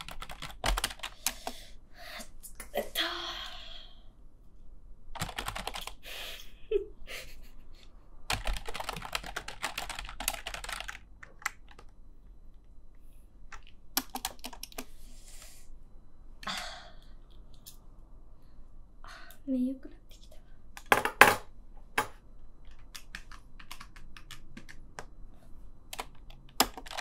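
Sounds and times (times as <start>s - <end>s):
typing on computer keyboard: 0.0s - 1.6s, 5.2s - 6.0s, 8.3s - 12.0s, 13.5s - 14.9s, 22.6s - 25.1s, 25.9s - 27.0s.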